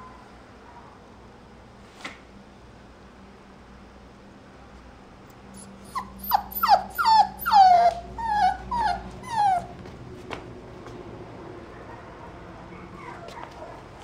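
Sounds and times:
puppy whining: 5.6s - 10.0s, 11.7s - 13.8s.

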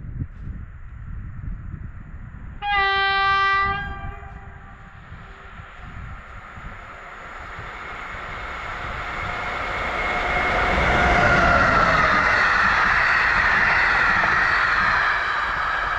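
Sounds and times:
train passing at speed: 1.8s - 15.9s.

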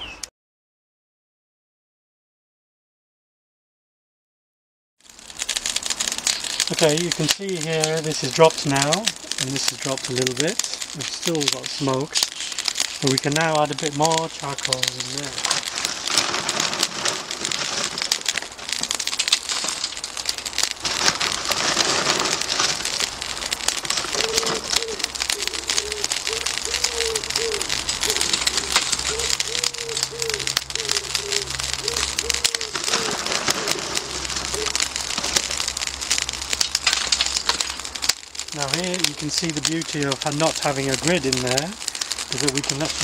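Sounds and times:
charcoal crackling and hissing: 5.0s - 43.0s
pigeon cooing: 24.0s - 35.6s.

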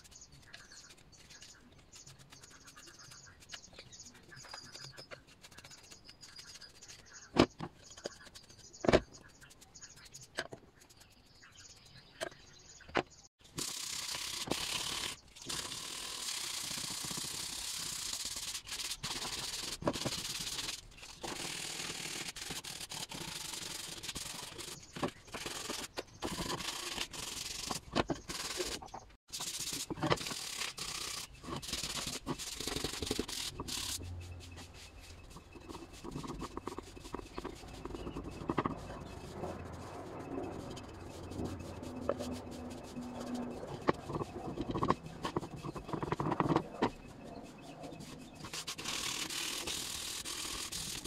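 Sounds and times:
pencil scratching on wood: 0.0s - 11.9s, 13.6s - 51.0s
sandpaper rubbing wood: 13.6s - 51.0s.

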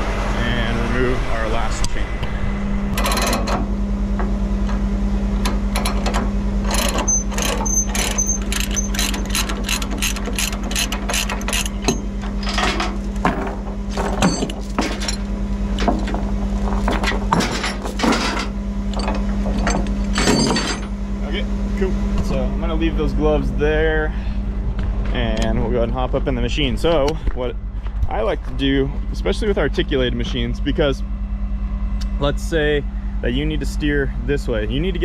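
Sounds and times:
diesel truck engine idling: 0.0s - 35.0s
ratchet binder clicking: 5.4s - 12.5s
chain links clanking: 5.7s - 21.0s.

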